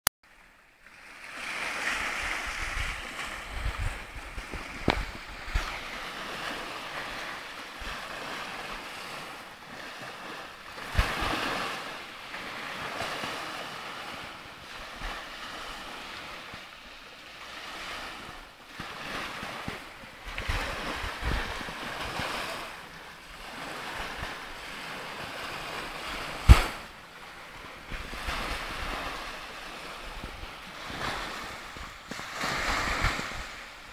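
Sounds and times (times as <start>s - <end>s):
waves washing up pebble beach: 1.0s - 16.5s, 17.4s - 33.9s
wind buffeting microphone: 1.7s - 9.4s, 19.4s - 22.6s, 27.6s - 33.9s.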